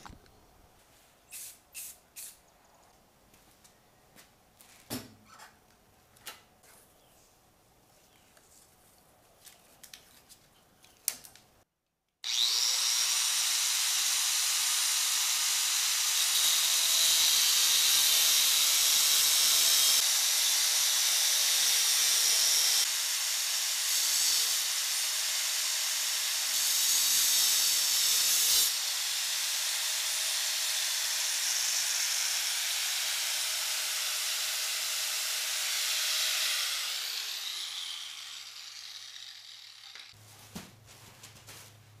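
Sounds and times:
angle grinder grinding metal: 12.3 - 40.2.

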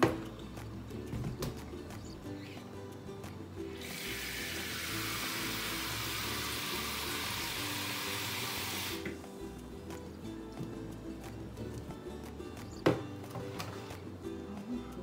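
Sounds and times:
faucet spraying into steel bowl: 3.8 - 9.1.

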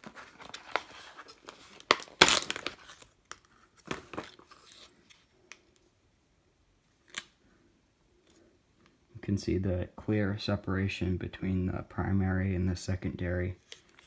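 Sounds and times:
plastic wrap crinkling and tearing: 0.0 - 4.9.

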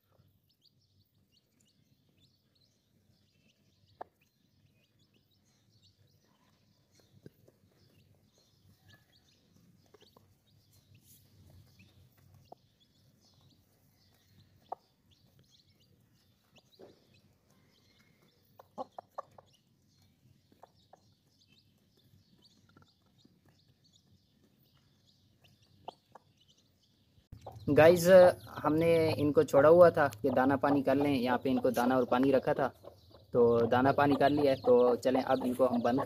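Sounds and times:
hen clucking softly: 14.6 - 15.4, 16.5 - 19.6.

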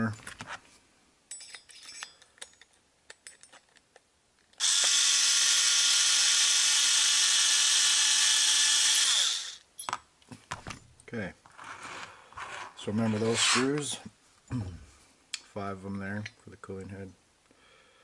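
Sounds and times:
cordless electric screwdriver running: 4.6 - 9.6.

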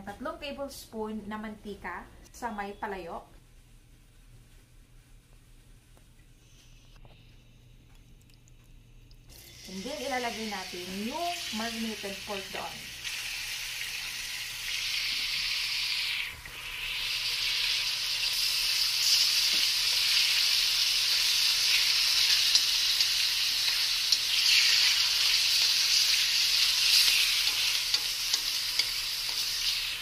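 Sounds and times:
meat sizzling in hot oil: 9.3 - 30.0.

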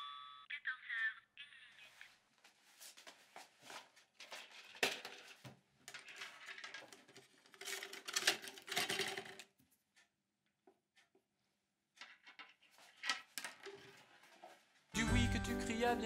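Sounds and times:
clicks taps and scrapes of objects: 4.2 - 9.8, 11.9 - 14.5.

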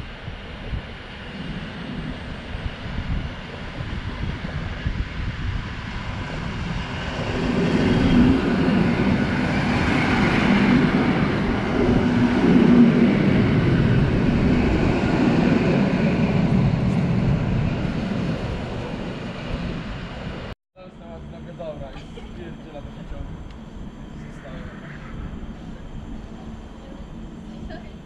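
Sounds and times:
low electric hum: 20.8 - 28.0.

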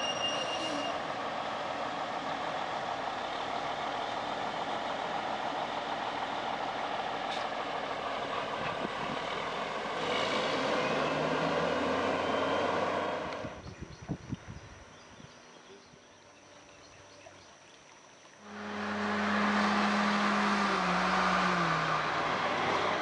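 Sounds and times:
diesel truck engine running: 0.9 - 13.6, 18.4 - 23.0.

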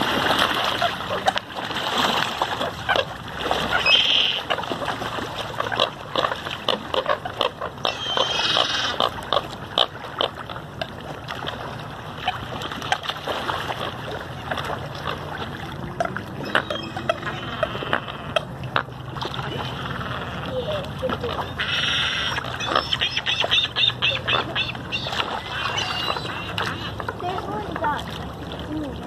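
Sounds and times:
birds splashing on water: 0.0 - 29.0
grunting bird calls: 7.0 - 9.1, 16.0 - 18.5, 19.9 - 27.0
higher bird call: 21.4 - 27.0.

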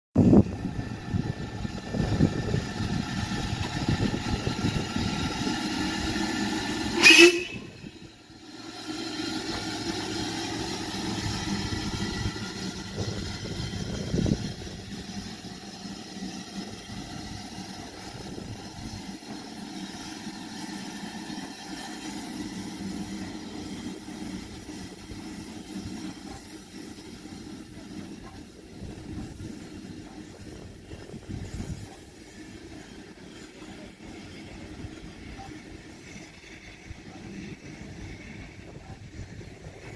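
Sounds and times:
steam locomotive running: 0.2 - 39.9
loud whistle blast: 7.0 - 7.9.

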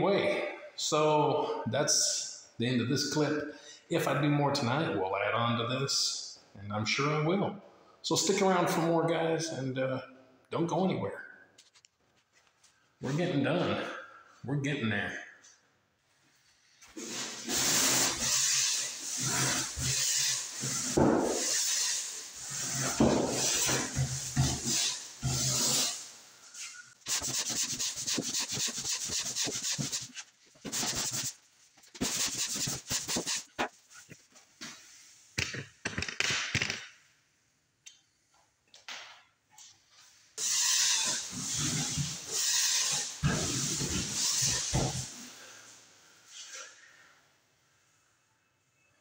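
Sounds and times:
pole sander scraping: 26.6 - 34.2.

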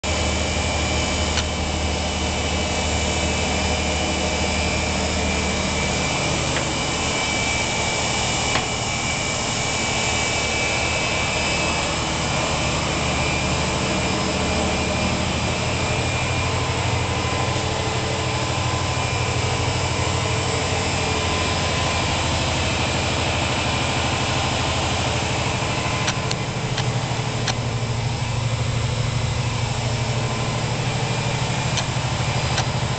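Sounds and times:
engine-room machinery drone: 0.0 - 32.9
thin high whine: 0.1 - 32.9
sharp clicks: 26.0 - 27.6.

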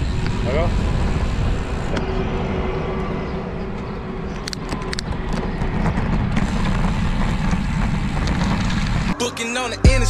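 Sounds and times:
motor traffic passing: 0.0 - 9.2
wind rushing over microphone: 0.0 - 9.2
bicycle road noise: 0.0 - 9.7
sharp clicks: 4.4 - 6.8.

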